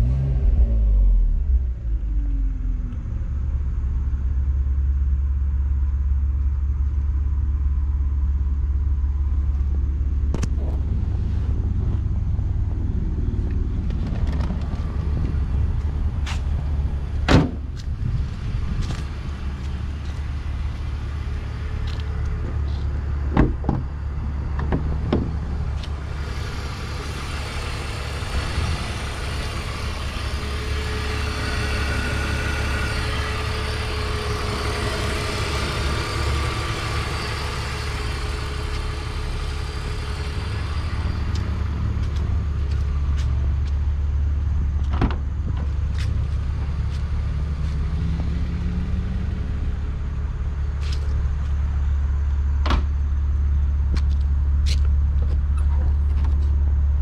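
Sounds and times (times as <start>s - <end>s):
car engine idling: 1.0s - 57.0s.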